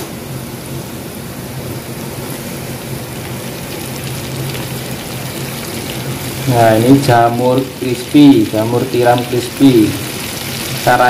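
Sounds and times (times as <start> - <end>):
deep-frying sizzle: 0.0 - 11.0.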